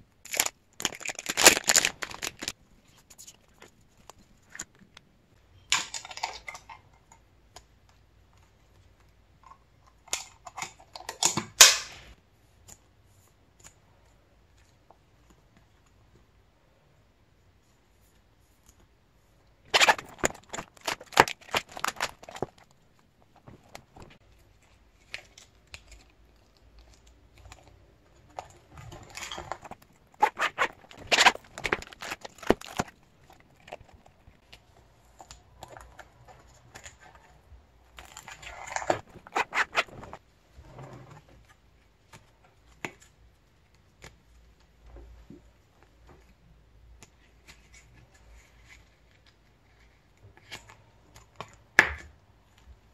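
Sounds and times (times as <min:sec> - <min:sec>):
plastic sleeves crinkling: 0:00.2 - 0:05.0, 0:19.6 - 0:40.5.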